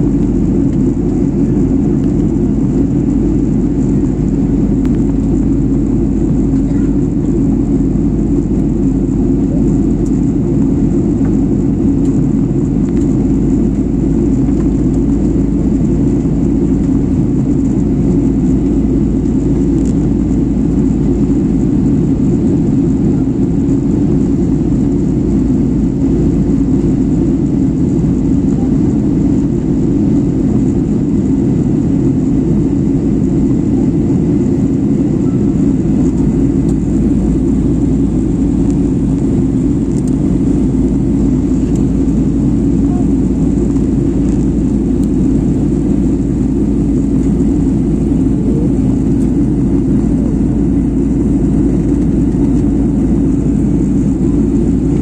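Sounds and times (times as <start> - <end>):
airliner cabin engine rumble: 0.0 - 55.0.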